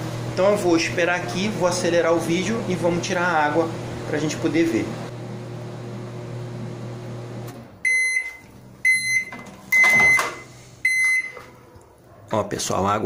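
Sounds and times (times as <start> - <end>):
microwave oven humming: 0.0 - 12.0
microwave beeps: 7.8 - 11.5.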